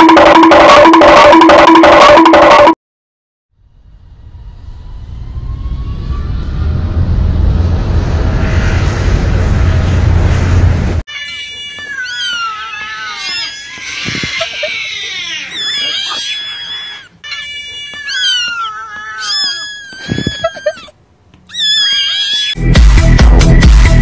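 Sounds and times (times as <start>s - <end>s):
jet airliner noise: 3.8s - 14.8s
cats meowing and yowling: 11.1s - 22.6s.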